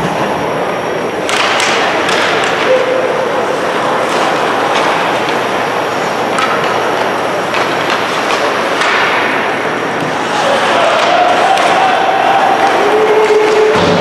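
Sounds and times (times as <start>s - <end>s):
hockey sticks and puck clacking: 1.2s - 14.0s
skates scraping on ice: 3.4s - 14.0s.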